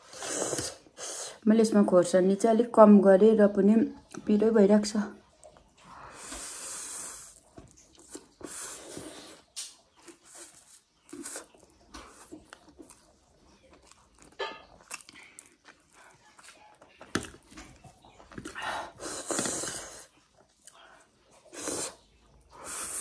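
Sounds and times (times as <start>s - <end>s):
slurping and chewing noodles: 0.0s - 1.4s, 5.3s - 23.0s.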